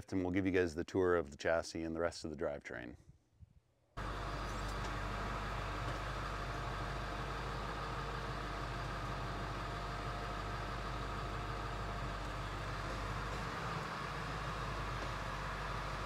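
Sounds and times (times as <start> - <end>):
diesel engine idling: 4.0 - 16.0.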